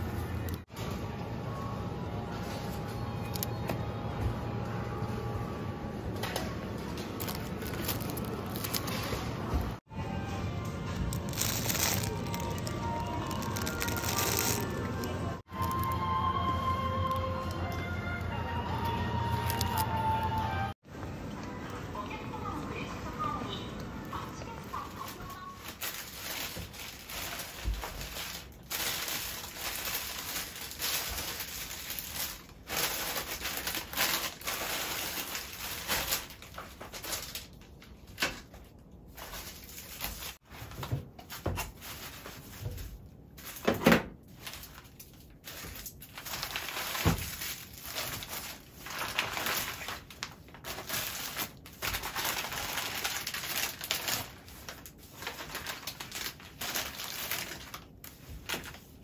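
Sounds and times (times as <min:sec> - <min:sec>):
plastic bags rustling and crinkling: 0:06.0 - 0:09.9, 0:10.9 - 0:16.2, 0:24.2 - 0:59.0.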